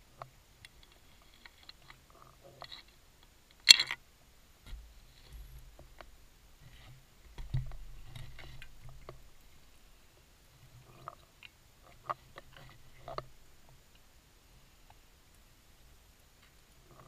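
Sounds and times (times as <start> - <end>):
small clicks and ticks: 0.1 - 4.0, 10.7 - 14.1, 16.2 - 17.0.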